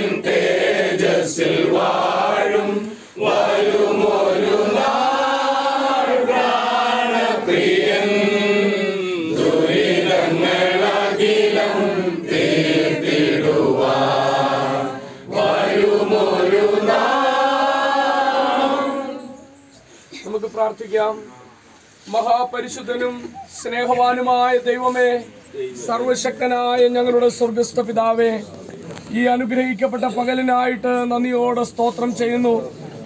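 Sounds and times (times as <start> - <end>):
congregation singing a hymn: 0.0 - 19.7.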